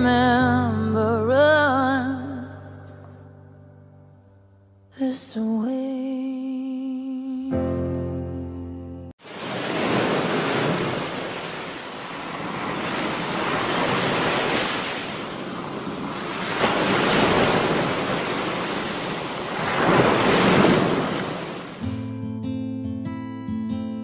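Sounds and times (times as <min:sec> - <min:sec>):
music: 0:00.0 - 0:06.6, 0:07.2 - 0:09.2, 0:21.8 - 0:24.0
sea waves breaking: 0:09.2 - 0:22.0.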